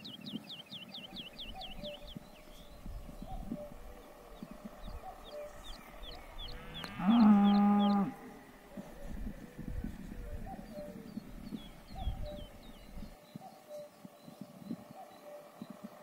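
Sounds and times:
high bird chirps: 0.0s - 8.2s, 10.3s - 16.0s
cow mooing: 3.0s - 10.2s.

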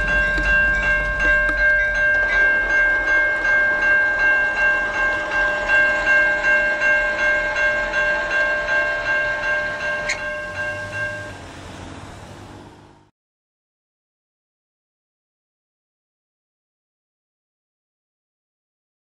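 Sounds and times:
railroad crossing bell ringing: 0.0s - 12.4s.

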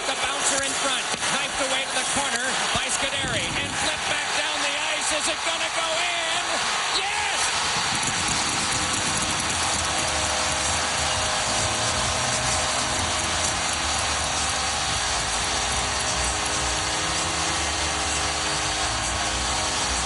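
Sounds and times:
arena crowd cheering: 0.0s - 20.0s.

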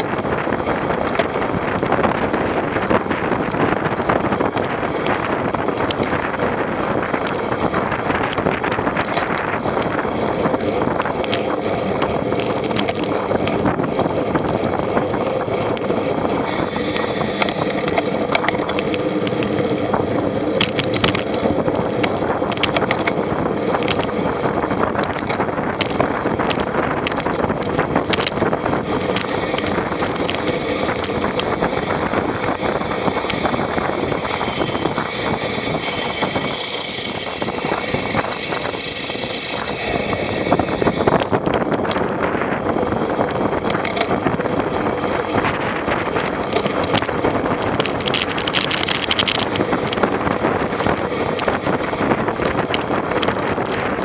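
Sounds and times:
vehicle engine rumbling: 0.0s - 54.0s
wind on microphone: 0.0s - 54.0s
sharp clicks and knocks: 11.0s - 13.8s, 15.2s - 19.7s, 20.5s - 24.2s, 25.0s - 32.2s, 43.6s - 44.3s, 45.4s - 50.2s.

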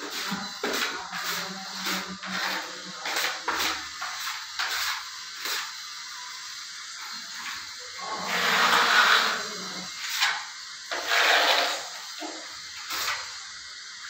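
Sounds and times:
putty knife scraping wall: 8.2s - 12.0s.

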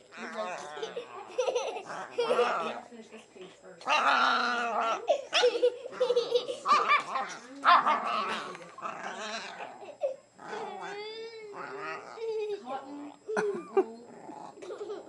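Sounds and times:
puppy growling and barking: 0.0s - 2.8s, 3.8s - 12.5s
child laughing: 0.8s - 2.7s, 5.1s - 7.1s, 12.1s - 12.7s, 13.3s - 14.0s, 14.6s - 15.0s.

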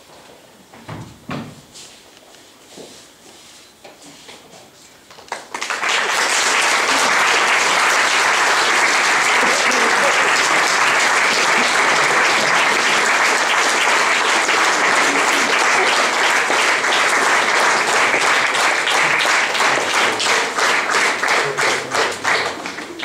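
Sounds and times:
audience applauding: 5.3s - 23.0s.

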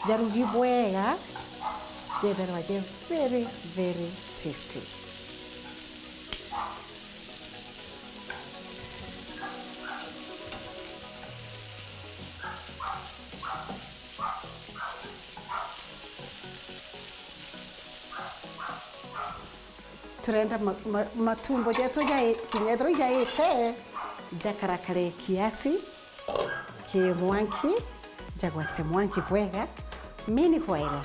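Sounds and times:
tripe sizzling in a pan: 0.0s - 31.0s.

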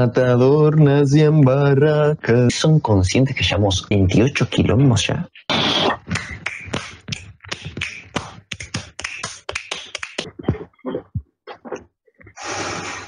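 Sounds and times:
man beatboxing: 5.3s - 10.7s.

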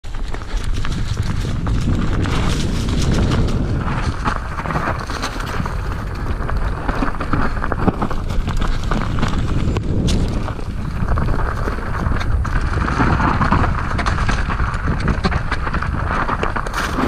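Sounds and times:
bike clicking and rattling: 0.0s - 17.0s
wind and tyre rumble: 0.0s - 17.0s.

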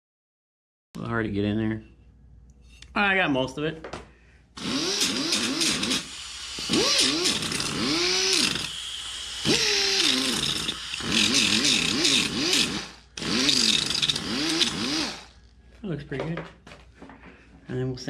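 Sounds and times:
pneumatic grinder sanding metal: 4.6s - 15.4s.

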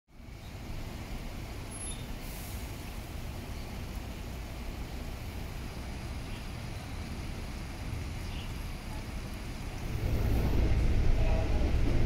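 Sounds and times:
diesel bus engine rumbling: 0.1s - 12.0s
brief hiss: 1.8s - 2.9s.

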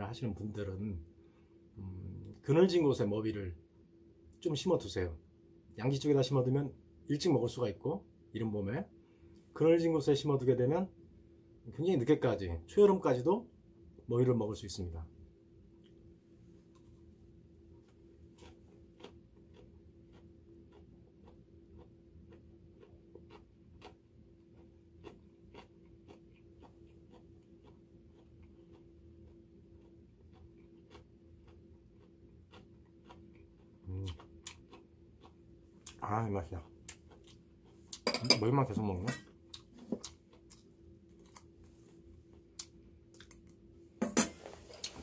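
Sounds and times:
faint hum: 0.0s - 45.0s
chewing crisp leaf: 17.8s - 38.1s, 39.5s - 43.5s.

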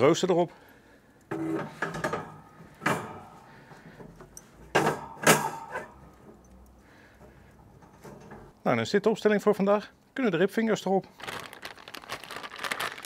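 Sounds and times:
metal grill grate clanking: 1.2s - 6.5s, 7.2s - 8.5s.

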